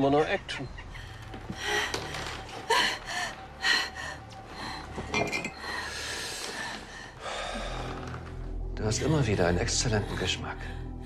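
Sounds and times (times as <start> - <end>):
glass bottles clinking: 5.0 - 5.9.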